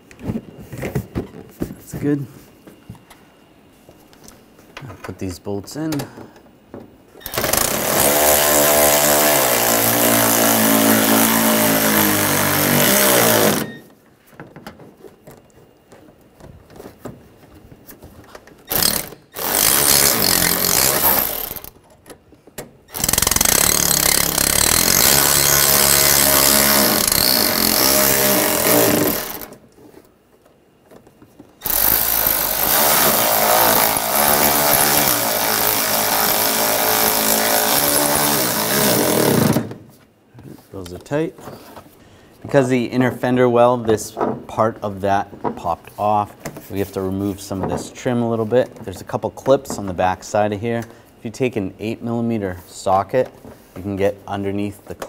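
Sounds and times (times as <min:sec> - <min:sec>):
cordless electric ratchet running: 0:18.7 - 0:21.7, 0:22.9 - 0:29.5, 0:31.6 - 0:39.6.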